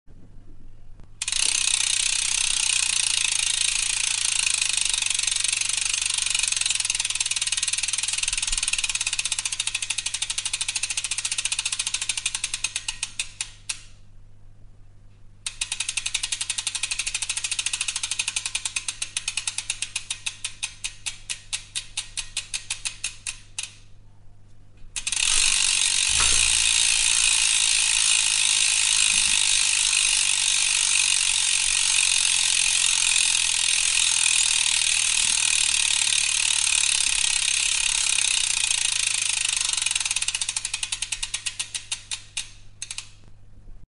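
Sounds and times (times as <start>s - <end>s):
bicycle freewheel ratcheting: 1.2s - 14.0s, 15.4s - 23.9s, 25.0s - 43.2s
low thump: 26.1s - 26.7s.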